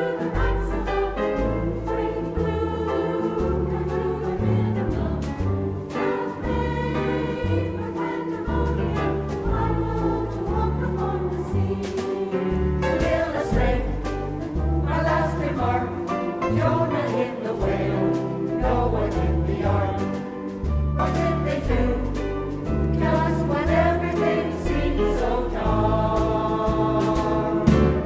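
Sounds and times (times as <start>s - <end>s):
choir singing in harmony: 0.0s - 28.0s
jazz band playing: 0.0s - 28.0s.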